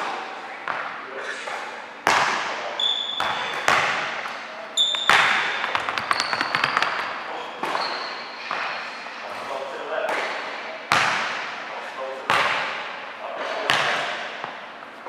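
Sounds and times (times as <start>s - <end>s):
sneaker squeaks: 2.6s - 9.6s
basketball bouncing on hardwood: 5.0s - 7.8s.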